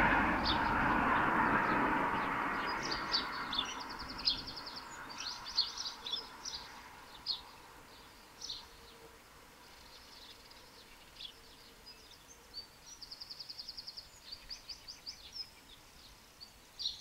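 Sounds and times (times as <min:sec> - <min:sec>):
steady rushing noise: 0:00.0 - 0:04.8
small songbirds chirping: 0:00.4 - 0:17.0.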